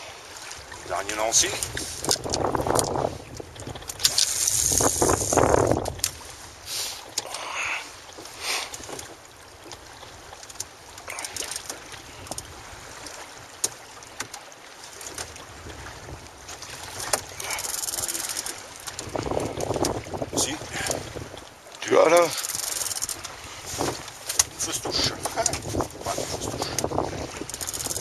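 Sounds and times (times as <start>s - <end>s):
water lapping against boat hull: 0.0s - 28.0s
wind on microphone: 0.7s - 6.7s, 15.3s - 21.5s, 22.5s - 28.0s.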